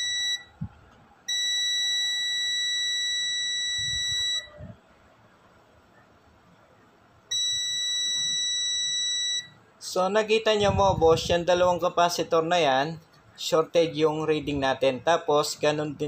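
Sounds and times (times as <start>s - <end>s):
multimeter continuity beep: 0.0s - 4.8s, 7.3s - 9.6s.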